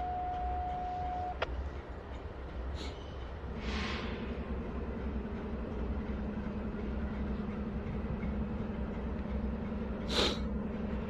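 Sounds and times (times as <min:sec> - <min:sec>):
diesel locomotive rumbling: 0:00.0 - 0:11.0
short burst of hiss: 0:03.6 - 0:04.2.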